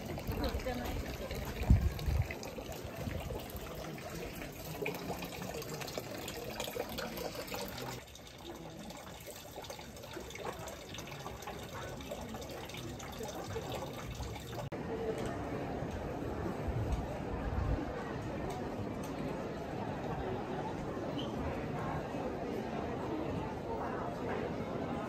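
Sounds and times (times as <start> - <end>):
running water splashing: 0.0 - 14.7
people's voices: 0.0 - 25.0.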